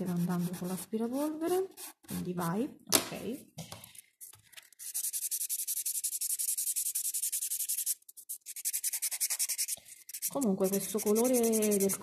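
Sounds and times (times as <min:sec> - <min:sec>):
nail file rasping: 0:04.8 - 0:12.0.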